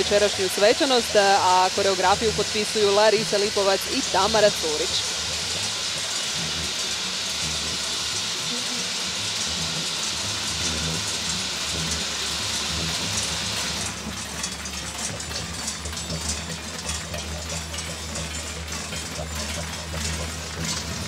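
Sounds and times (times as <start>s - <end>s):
large metal bells clanging: 13.2s - 21.0s.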